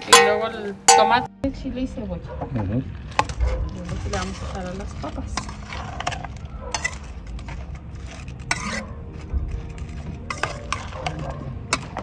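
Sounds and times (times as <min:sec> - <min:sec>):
spoon scraping enamel bowl: 0:03.1 - 0:12.0.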